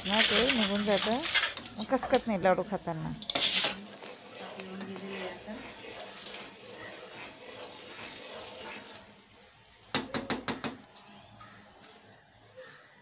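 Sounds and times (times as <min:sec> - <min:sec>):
spoon stirring bubbling syrup: 0:00.0 - 0:12.5
knocks on a pot: 0:09.9 - 0:10.8.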